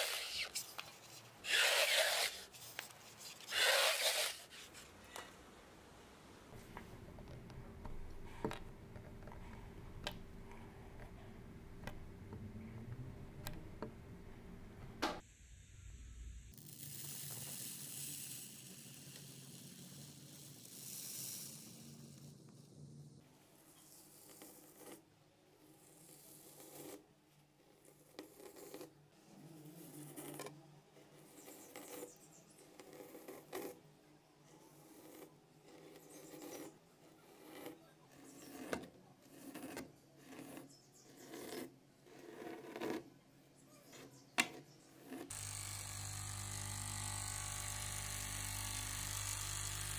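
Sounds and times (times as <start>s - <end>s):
knife cutting soap with clicks: 37.3s - 40.7s.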